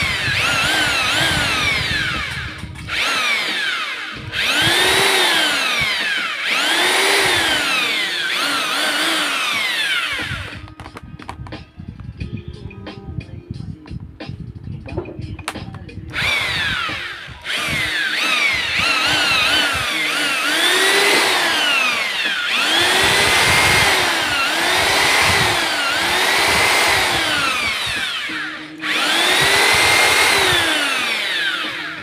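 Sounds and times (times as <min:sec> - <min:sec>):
electric drill motor whine: 0:00.0 - 0:11.5, 0:16.1 - 0:32.0.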